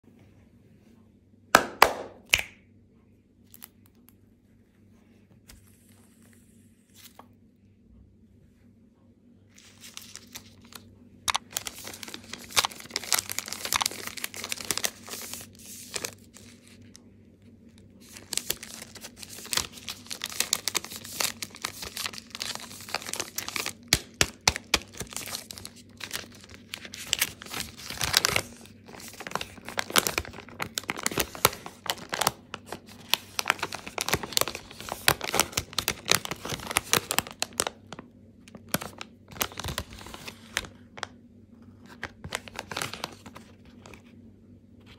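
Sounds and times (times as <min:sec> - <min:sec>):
foil wrapper crinkling and tearing: 0:09.6 - 0:17.0, 0:18.0 - 0:41.1, 0:41.9 - 0:44.0.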